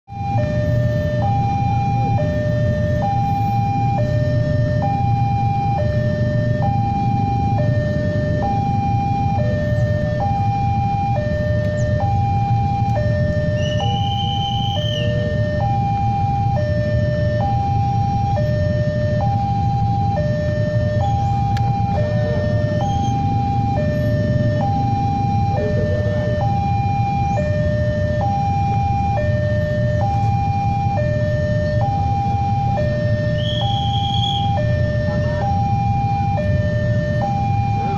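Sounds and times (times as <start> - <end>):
level crossing two-tone alarm: 0.1 - 37.9.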